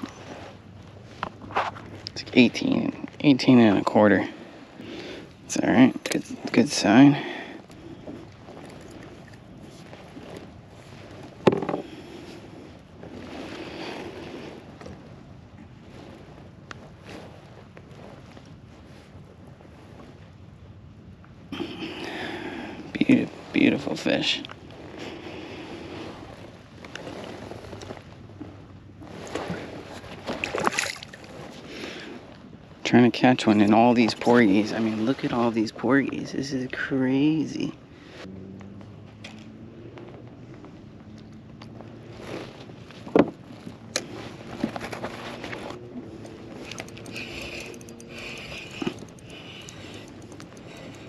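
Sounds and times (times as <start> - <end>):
fishing tackle clicks and knocks: 5.9 - 6.6, 11.4 - 11.9, 46.2 - 51.0
reel gears whirring: 46.4 - 51.0.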